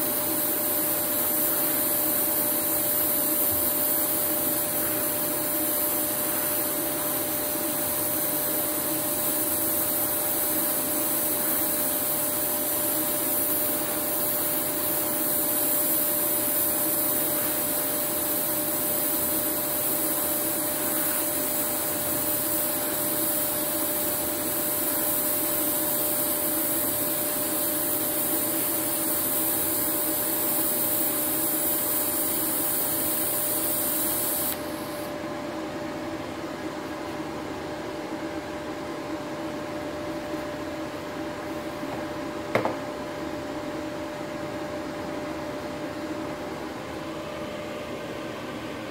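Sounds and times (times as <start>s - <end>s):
welding arc hissing: 0.0s - 35.2s.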